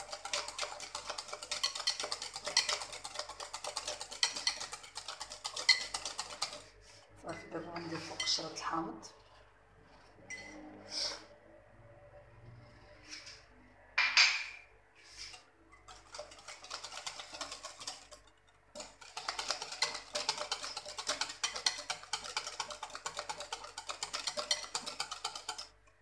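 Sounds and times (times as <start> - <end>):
whisk clicking against glass bowl: 0.0 - 6.7, 15.3 - 26.0.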